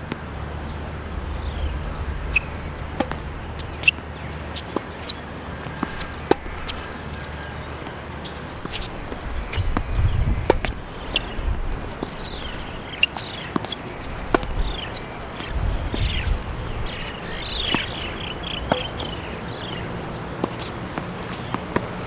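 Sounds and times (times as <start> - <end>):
birds chirping: 0.4 - 21.9
tennis ball pops: 18.6 - 19.0.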